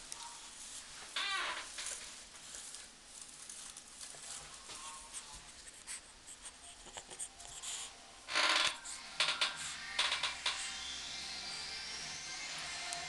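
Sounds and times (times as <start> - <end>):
puppy scratching on rug: 1.9 - 11.0.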